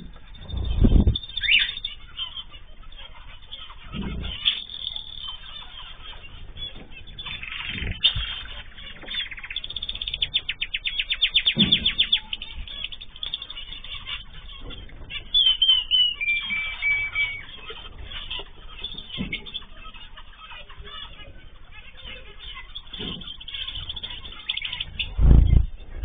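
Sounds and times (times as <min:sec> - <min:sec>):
low thumps: 0:00.0 - 0:01.6, 0:24.8 - 0:26.0
birds chirping in a trill: 0:00.0 - 0:26.0
bird whistle falling: 0:15.4 - 0:17.4.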